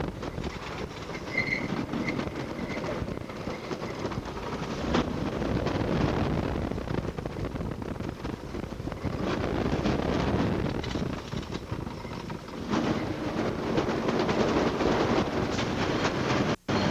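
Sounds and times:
roller coaster rumbling on wooden track: 0:00.0 - 0:16.9
high squeal: 0:01.2 - 0:04.1.

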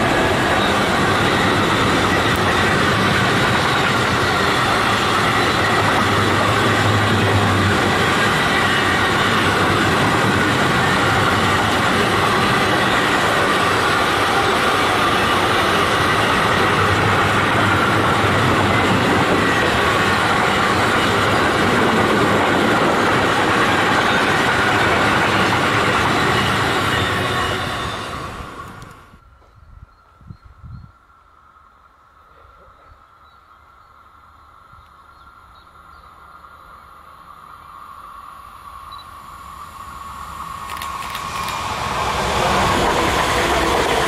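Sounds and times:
steady high tones: 0:00.0 - 0:28.7
train wheels rumbling on rails: 0:00.0 - 0:29.6, 0:38.6 - 0:44.0.

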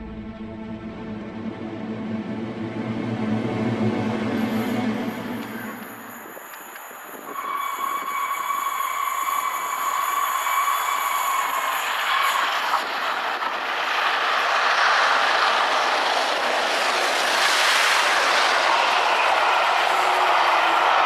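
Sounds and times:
steady high tone: 0:00.0 - 0:07.3
steam locomotive approaching: 0:00.0 - 0:21.0.

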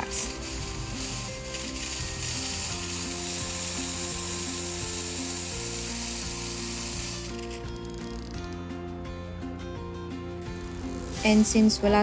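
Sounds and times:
espresso steam wand hissing: 0:00.0 - 0:08.5, 0:10.5 - 0:11.8.

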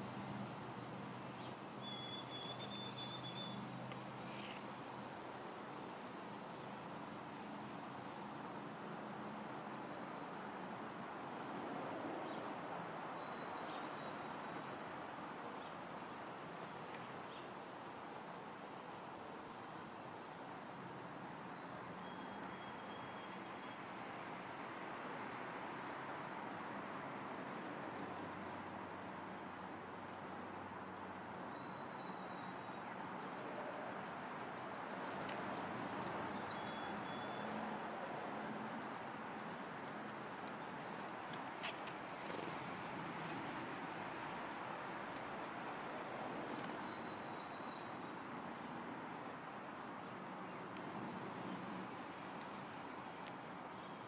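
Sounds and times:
distant bird chirps: 0:01.4 - 0:04.6, 0:20.9 - 0:23.8, 0:30.3 - 0:33.4, 0:35.1 - 0:37.8
high bird whistles: 0:01.8 - 0:03.6.

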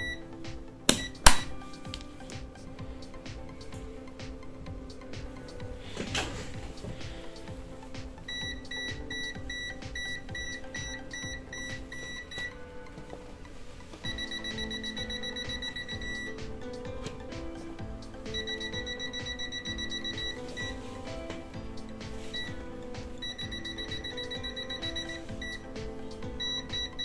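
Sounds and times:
high-pitched beeping: 0:00.0 - 0:01.9, 0:07.2 - 0:12.9, 0:14.0 - 0:27.0
background music: 0:00.0 - 0:27.0.

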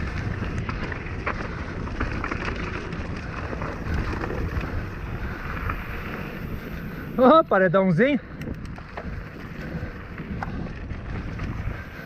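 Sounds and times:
bike clattering over bumps: 0:00.0 - 0:07.1
wind buffeting microphone: 0:00.0 - 0:12.0.

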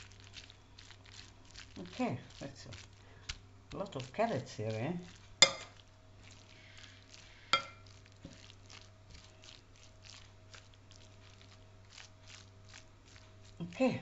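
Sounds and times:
salad scraping and squishing: 0:00.0 - 0:14.0
fork clinking against bowl: 0:05.4 - 0:05.8, 0:07.6 - 0:07.9.

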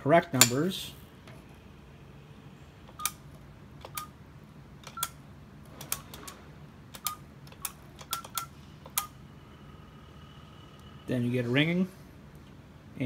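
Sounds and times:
keypad presses with beeps: 0:02.9 - 0:03.2, 0:03.8 - 0:04.2, 0:04.8 - 0:05.2, 0:07.0 - 0:09.1.

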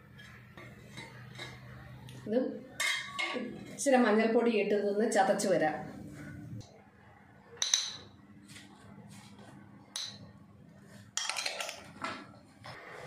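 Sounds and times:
steel kitchenware clinking: 0:00.2 - 0:01.8, 0:02.8 - 0:03.8, 0:11.2 - 0:11.9.

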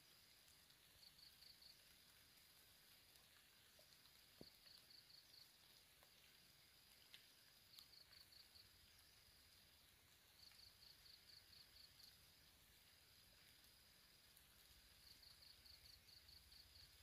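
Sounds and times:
faint clicks: 0:00.4 - 0:09.0
high-pitched insect trill: 0:06.2 - 0:09.8, 0:10.4 - 0:17.0.

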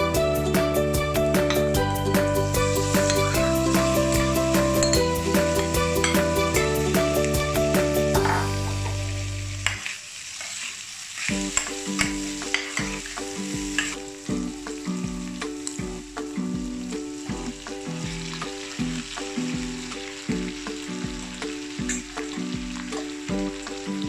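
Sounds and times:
background music with steady beat: 0:00.0 - 0:09.2, 0:11.3 - 0:24.0
meat sizzling in a pan: 0:02.3 - 0:24.0.

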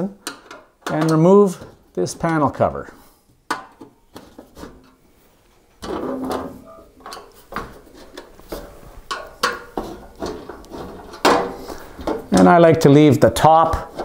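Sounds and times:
screwdriver scraping and clicking on metal: 0:13.5 - 0:14.0.

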